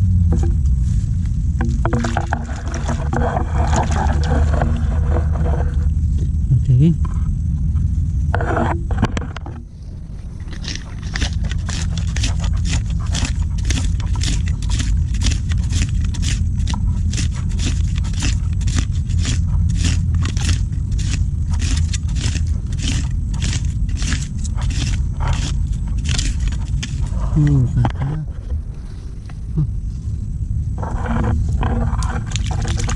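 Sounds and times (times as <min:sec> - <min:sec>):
steady low rumble: 0:00.0 - 0:32.9
blade chopping into mud: 0:10.6 - 0:26.6.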